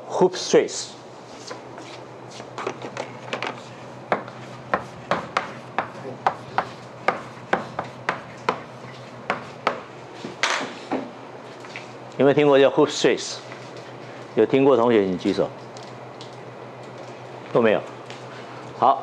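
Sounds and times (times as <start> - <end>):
low room hum: 0.0 - 19.0
chalk writing on a blackboard: 4.3 - 9.7.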